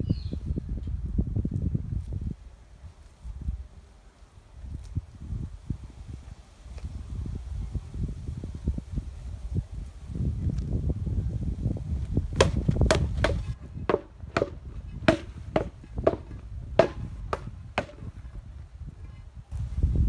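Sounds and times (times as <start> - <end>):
sword striking rubber tyres: 12.4 - 18.4.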